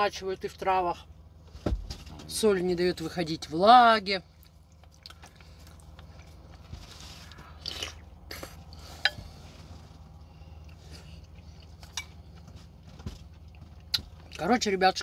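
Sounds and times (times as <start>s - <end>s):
low steady hum: 0.0s - 15.0s
person chewing food: 4.3s - 14.4s
wet mouth clicks: 7.6s - 8.6s.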